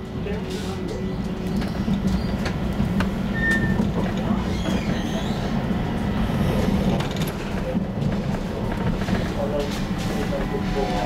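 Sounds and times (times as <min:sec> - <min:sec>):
tram rumbling on track: 0:00.0 - 0:11.0.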